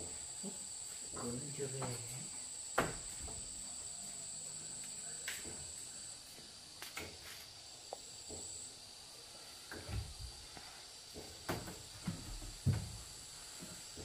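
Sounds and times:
insects chirring: 0.0s - 14.0s.

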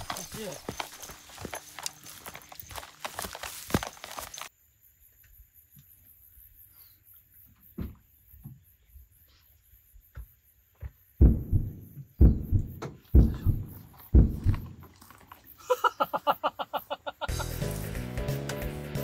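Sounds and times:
footsteps through long grass: 0.0s - 4.5s
low rumbling thumps: 11.2s - 14.8s.

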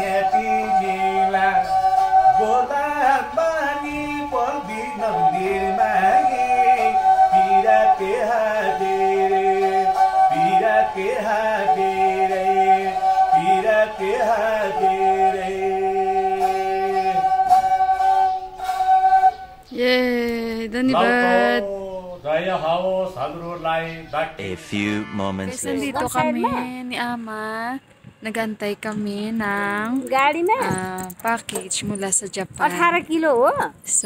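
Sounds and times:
bowed fiddle melody: 24.4s - 26.8s.

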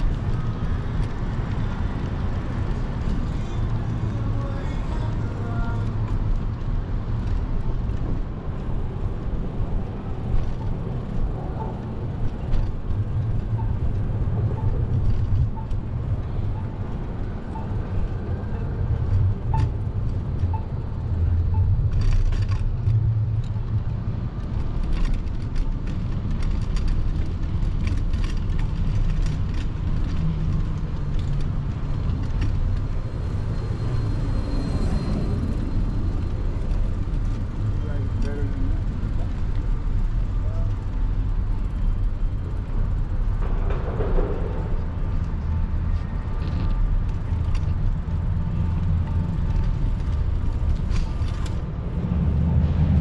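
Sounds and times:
city street traffic: 0.0s - 53.0s
wind rumble on microphone: 0.0s - 53.0s.

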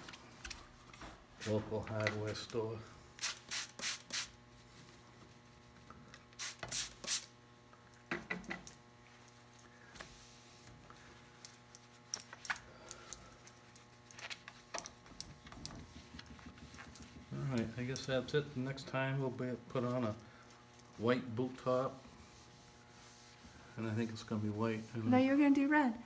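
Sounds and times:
spray bottle squirting: 3.2s - 4.4s, 6.4s - 7.3s
faint steady hum: 4.3s - 26.0s
cloth wiping and tapping: 14.4s - 18.0s.

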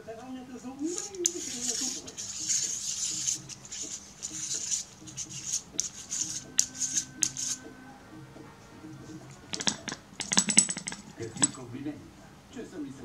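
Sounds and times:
fingertips rubbing on metal ring: 0.8s - 7.7s, 9.0s - 11.6s.

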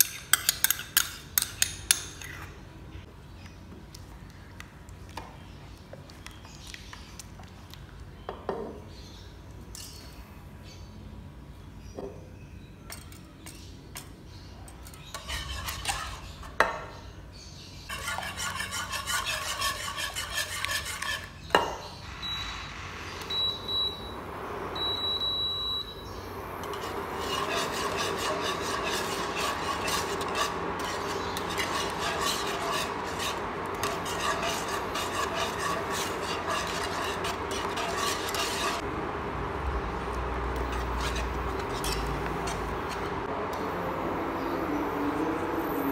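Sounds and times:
whisk scraping metal pan: 15.0s - 16.6s, 17.9s - 21.4s, 26.6s - 38.9s, 40.6s - 43.3s
faint hum: 21.9s - 45.5s
short electronic beeps: 22.2s - 22.6s, 23.3s - 24.2s, 24.8s - 26.1s.

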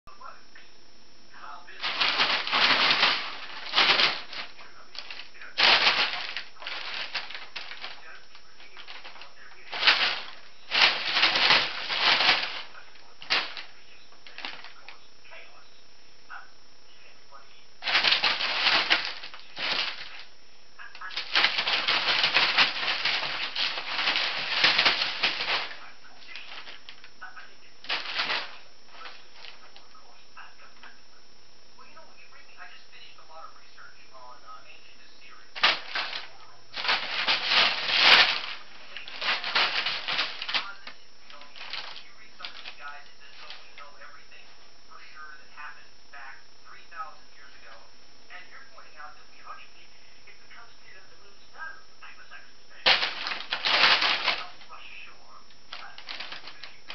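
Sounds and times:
crumpled paper crackling and rustling: 1.7s - 15.1s, 17.8s - 31.0s, 35.5s - 44.7s, 52.8s - 54.8s, 55.5s - 56.9s.

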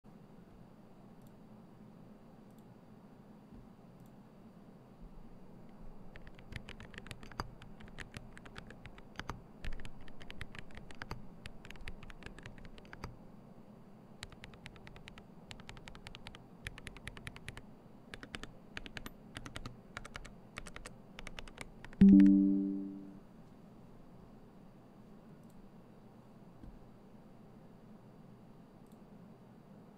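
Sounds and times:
mechanical keyboard typing: 6.1s - 13.2s, 14.2s - 22.8s
pitched chime: 22.0s - 23.1s.

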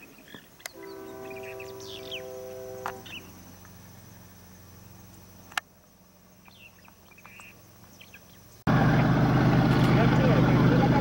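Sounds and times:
faint bird chirps: 0.0s - 3.4s, 6.4s - 8.7s
low steady hum: 0.6s - 11.0s
diesel locomotive engine rumble: 0.7s - 6.2s, 8.7s - 11.0s.

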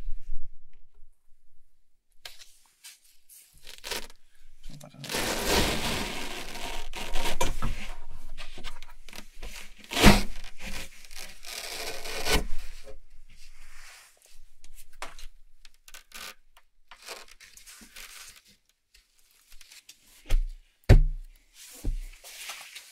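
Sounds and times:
velcro rasping and ripping: 3.6s - 4.2s, 5.0s - 7.5s, 9.8s - 12.5s, 15.9s - 18.6s.

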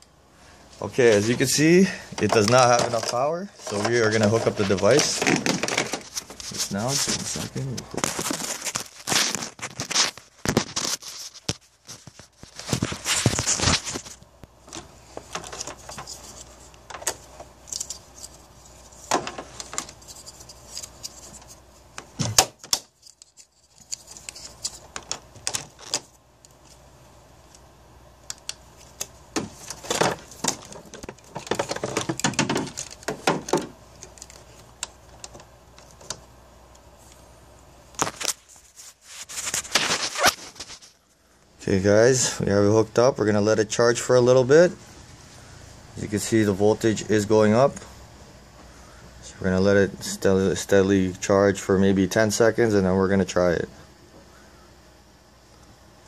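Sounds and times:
clamps and cables rattling: 1.2s - 6.6s, 29.4s - 35.4s.

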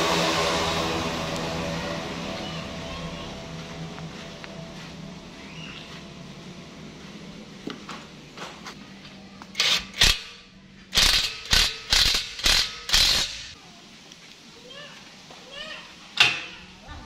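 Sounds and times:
impact wrench bursts: 9.5s - 13.6s.

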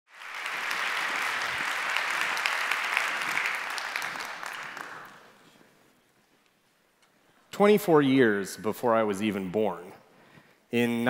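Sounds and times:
audience applauding: 0.1s - 5.4s.

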